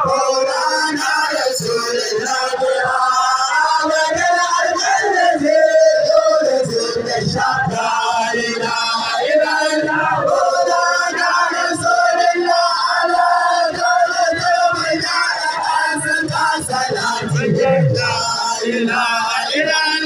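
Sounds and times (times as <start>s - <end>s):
crowd noise: 0.0s - 20.0s
men chanting in unison: 0.0s - 20.0s.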